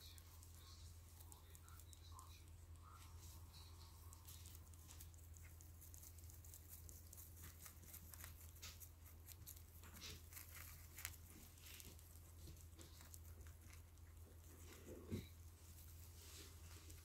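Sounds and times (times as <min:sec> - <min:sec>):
hamsters nibbling clicks: 0:00.0 - 0:17.0
steady low hum: 0:00.0 - 0:17.0.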